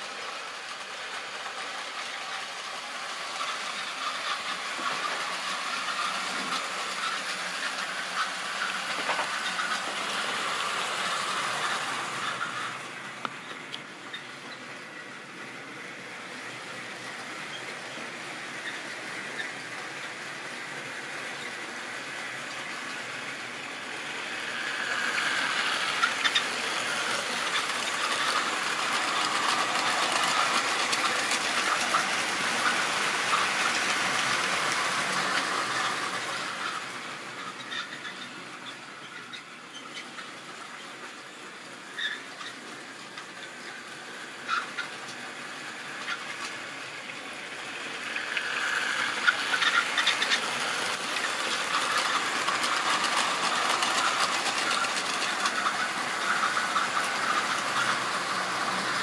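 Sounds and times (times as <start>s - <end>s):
model train wheels rattling on rails: 0.0s - 59.0s.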